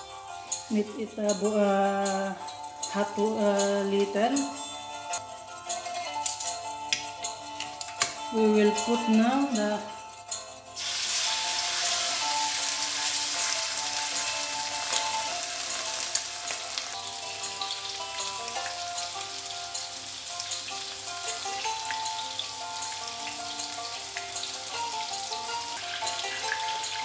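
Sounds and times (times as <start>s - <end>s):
background music: 0.0s - 27.0s
fish sizzling in oil: 10.8s - 27.0s.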